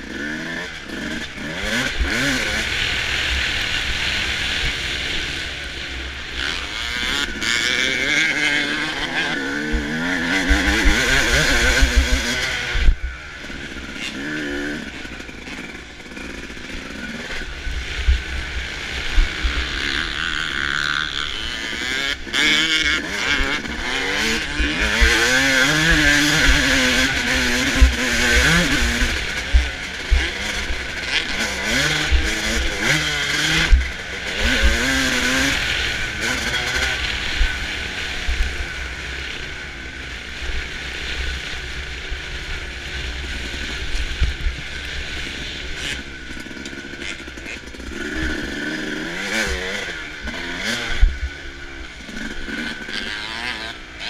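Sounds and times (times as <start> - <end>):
motocross bike engine revving: 0.0 - 54.0.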